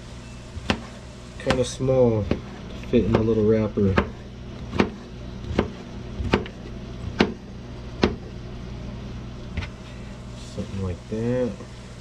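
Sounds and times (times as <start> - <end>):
knife knocking cutting board: 0.6 - 7.4, 8.0 - 8.3.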